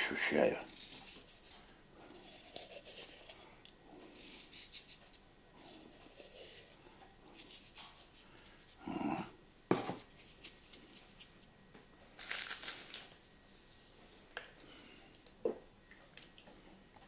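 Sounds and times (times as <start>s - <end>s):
rustling and scraping: 12.1s - 14.4s.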